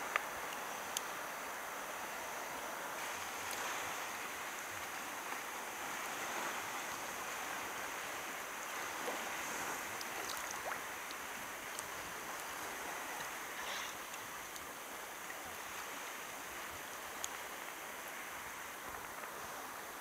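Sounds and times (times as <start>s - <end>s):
light ticks: 0.1s - 1.1s, 10.0s - 12.6s, 14.1s - 14.7s, 16.9s - 17.4s
small waves lapping against kayak hull: 2.5s - 20.0s.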